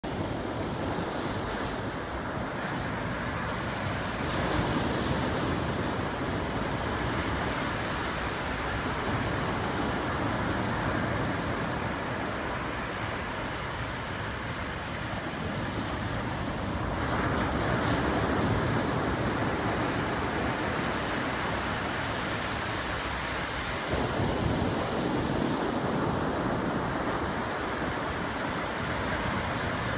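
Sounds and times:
wind buffeting microphone: 0.0s - 29.9s
waves washing among rocks: 16.6s - 29.9s.

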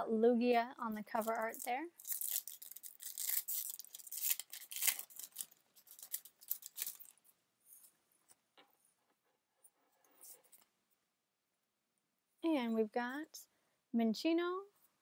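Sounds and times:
foil wrapper tearing and crinkling: 1.1s - 7.2s.

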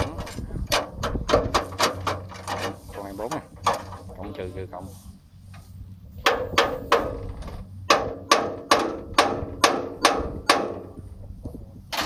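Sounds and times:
hammer striking metal: 7.9s - 10.9s.

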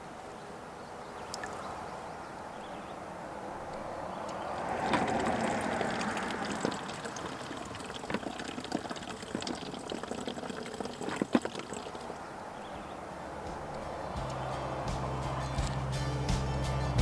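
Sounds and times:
water pouring into container: 1.3s - 1.7s, 4.5s - 12.3s.

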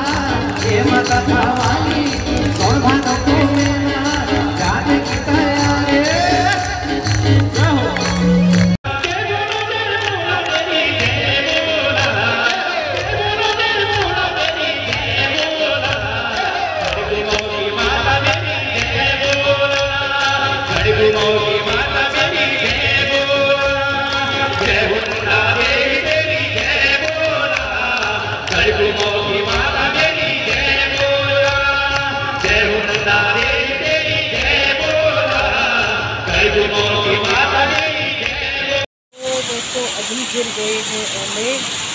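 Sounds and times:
steady percussion beat: 0.0s - 12.4s
devotional singing over loudspeakers: 0.0s - 41.6s
percussion beat: 0.0s - 41.9s.

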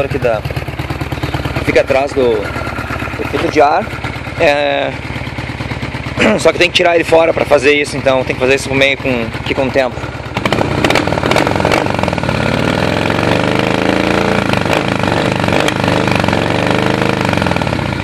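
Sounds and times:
motorcycle engine revving: 0.0s - 18.0s
exhaust pops: 10.4s - 12.0s.

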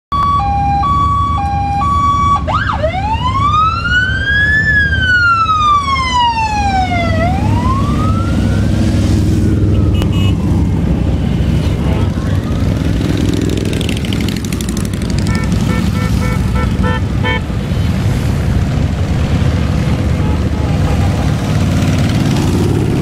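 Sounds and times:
emergency vehicle siren: 0.1s - 13.5s
low rumble of vehicle engines: 0.1s - 23.0s.

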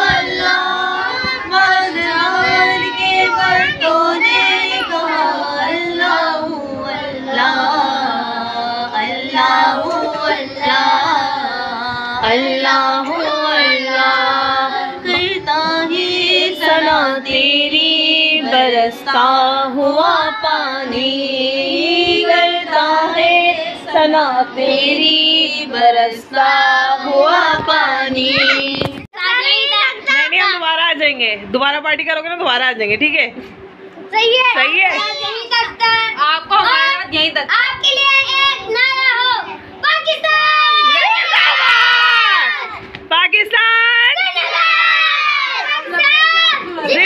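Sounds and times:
children singing together: 0.0s - 29.0s.

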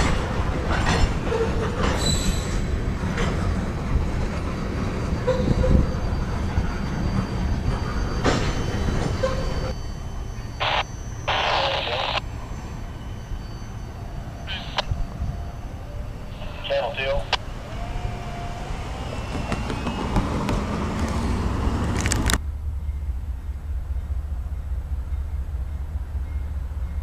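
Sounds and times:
freight train rolling past: 0.0s - 27.0s
wheel squeals: 0.8s - 3.4s, 4.3s - 16.6s.

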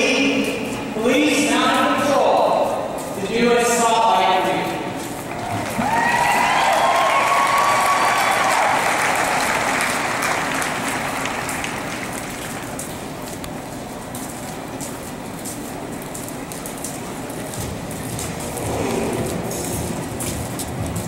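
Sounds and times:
crowd applauding: 5.2s - 12.8s.

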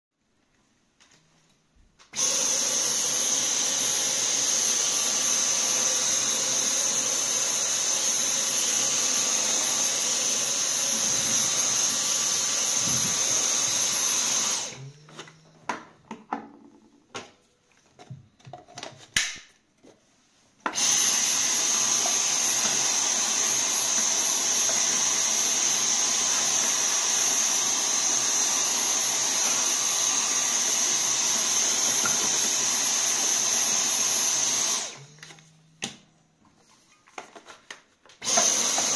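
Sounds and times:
handheld vacuum cleaner whining: 2.1s - 15.9s, 20.6s - 36.0s, 38.2s - 38.9s.

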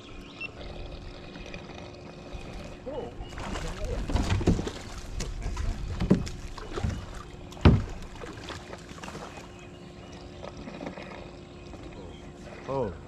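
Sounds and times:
faint steady hum: 0.0s - 13.0s
knocks against a kayak: 4.0s - 8.3s.

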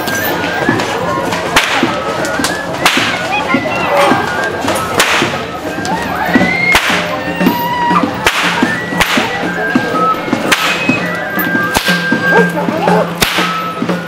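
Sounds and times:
whip cracks: 1.5s - 3.3s, 5.0s - 5.4s, 6.7s - 7.1s, 8.2s - 9.4s, 10.4s - 11.0s, 11.7s - 12.1s, 13.2s - 13.6s.

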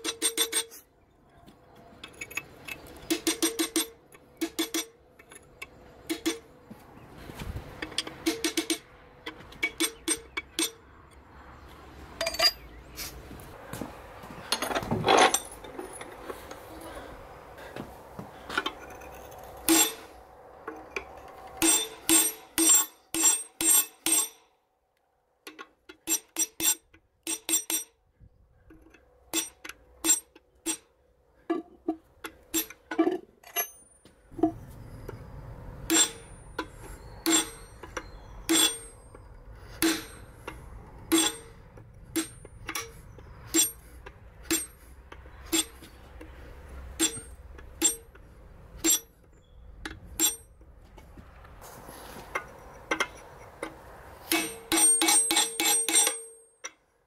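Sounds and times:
hammer tapping steel punch: 35.9s - 45.9s, 47.0s - 48.2s, 54.3s - 56.8s.

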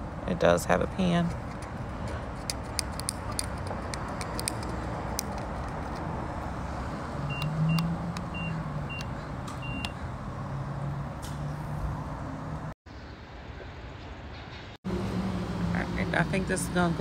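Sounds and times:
keypad beeping: 7.3s - 10.0s.

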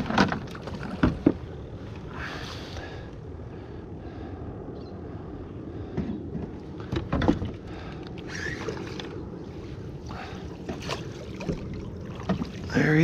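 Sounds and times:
low rumble of water and wind: 0.0s - 13.0s
water splashing: 7.8s - 13.0s.

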